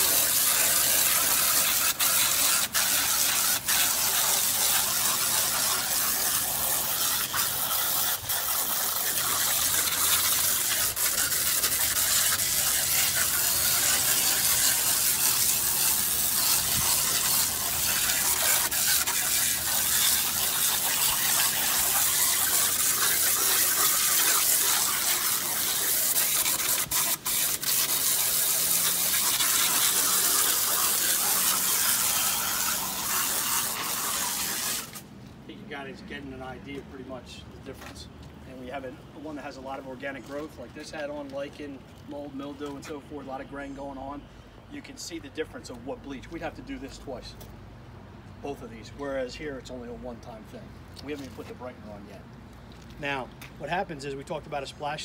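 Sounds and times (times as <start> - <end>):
pressure washer spraying wood: 0.0 - 35.1.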